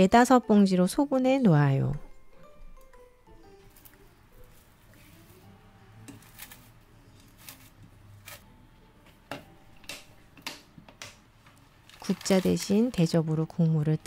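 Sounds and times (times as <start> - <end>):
plastic wrap crinkling: 6.1 - 8.4, 11.8 - 13.2.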